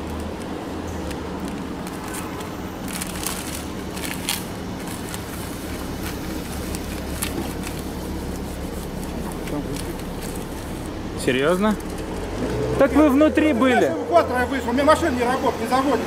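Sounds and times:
sticker backing paper crinkling: 0.0 - 11.0
street traffic rumble: 0.0 - 16.0.

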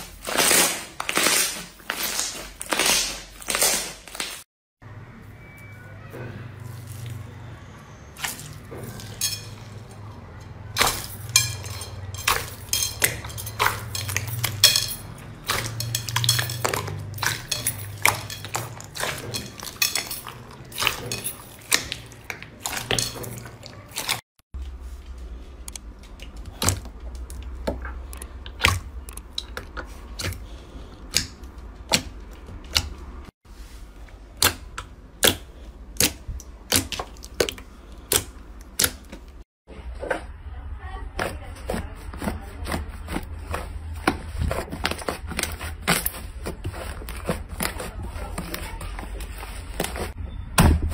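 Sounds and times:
crunchy slime crackling: 0.0 - 4.4.

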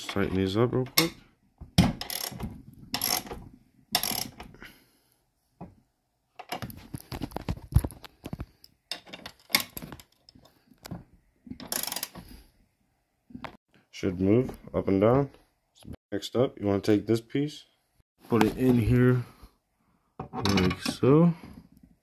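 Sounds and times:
ratchet wrench clicking: 2.0 - 2.4, 3.0 - 3.3, 4.0 - 4.4, 11.7 - 12.1.

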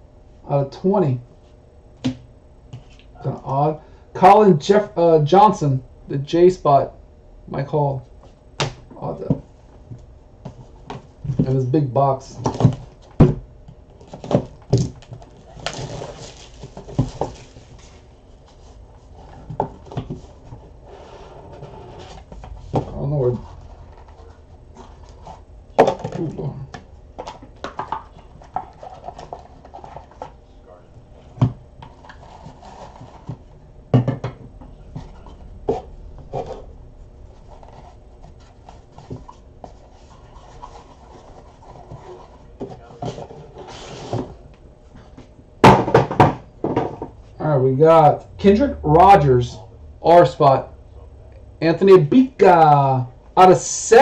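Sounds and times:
soft handling noise: 8.0 - 45.4
packaging rustling: 14.0 - 18.1.

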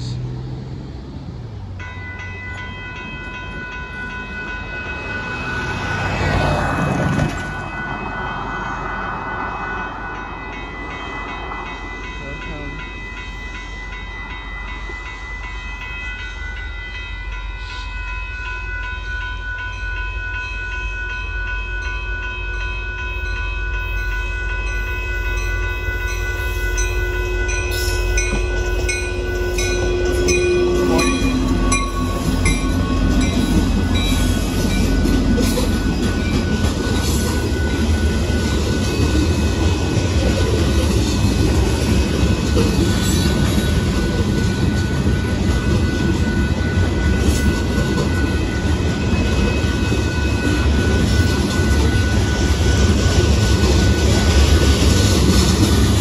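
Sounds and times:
train rumbling and clattering: 0.0 - 56.0
railroad crossing bell ringing: 1.6 - 56.0
locomotive horn blast: 27.0 - 33.2.

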